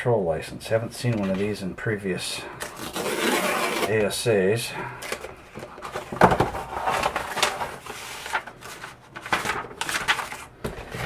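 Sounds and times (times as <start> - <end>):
paper rustling and scraping: 2.6 - 4.1, 5.0 - 11.0.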